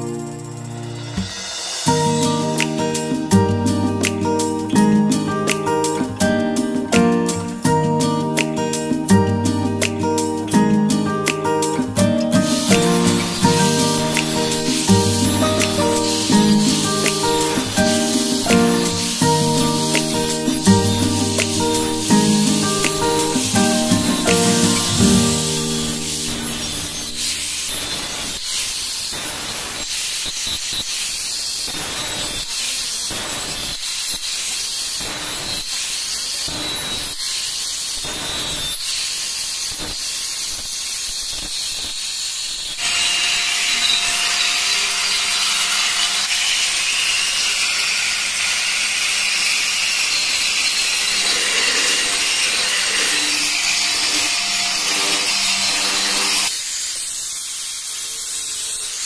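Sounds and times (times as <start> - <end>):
angle grinder grinding tile: 12.4 - 29.1, 32.3 - 57.2.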